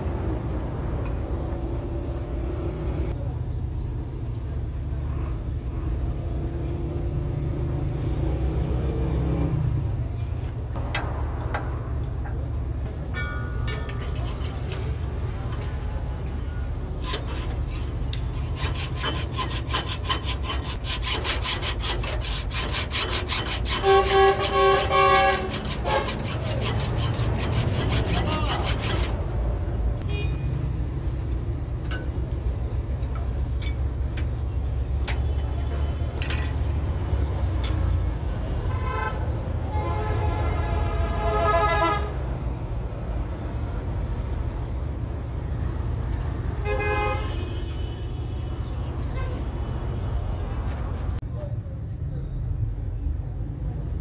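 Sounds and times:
low rumble of engines: 0.0s - 54.0s
vehicle horns tooting: 23.7s - 26.2s, 30.0s - 30.4s, 38.7s - 42.1s.

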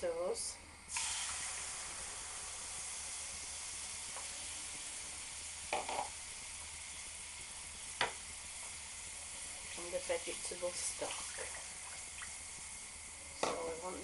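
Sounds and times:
tomatoes sizzling in a frying pan: 0.0s - 14.0s.

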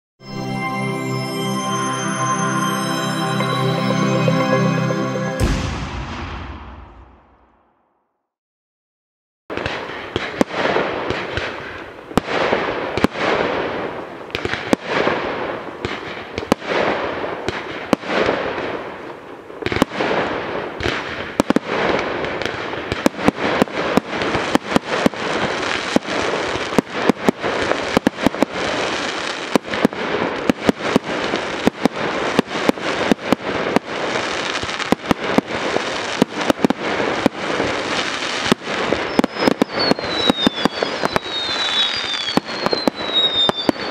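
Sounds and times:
fireworks bursting with bangs: 5.0s - 7.8s, 9.5s - 43.9s
fireworks hiss and crackle: 9.5s - 43.9s.

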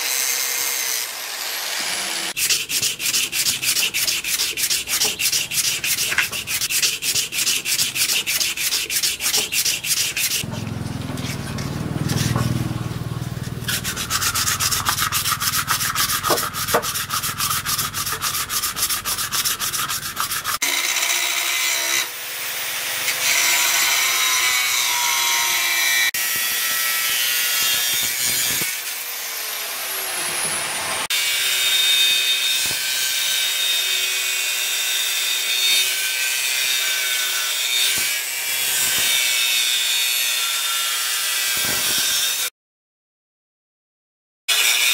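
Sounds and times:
angle grinder cutting steel: 0.0s - 42.5s, 44.5s - 44.9s
sandpaper rubbing by hand: 2.4s - 20.6s.

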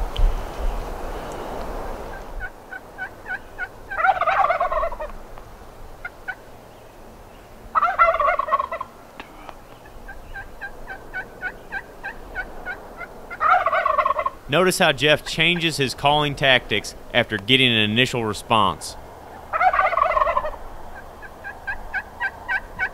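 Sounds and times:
turkey call yelps: 2.1s - 5.2s, 7.7s - 8.9s, 9.8s - 14.5s, 19.2s - 22.9s
turkey gobbling: 2.1s - 5.2s, 6.0s - 6.5s, 7.7s - 17.4s, 18.1s - 22.9s.

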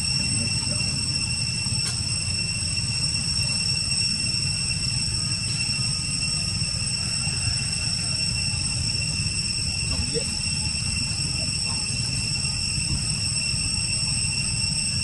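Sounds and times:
high-pitched whine: 0.0s - 15.0s
steady low rumble: 8.4s - 15.0s.

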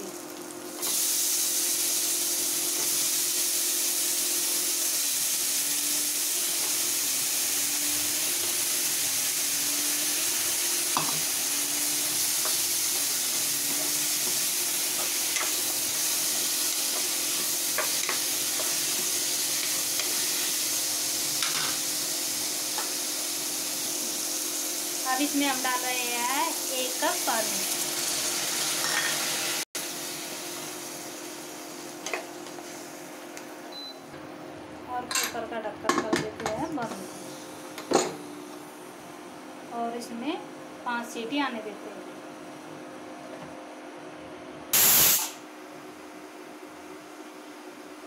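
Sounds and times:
vegetables sizzling in hot oil: 0.0s - 33.3s, 44.8s - 45.4s.

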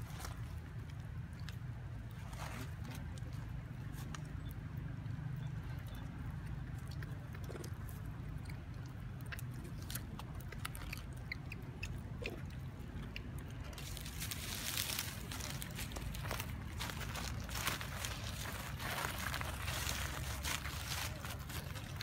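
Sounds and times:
small clicks and crackles: 0.0s - 22.0s
steady low rumble: 0.0s - 22.0s
dry leaves rustling: 13.7s - 22.0s.

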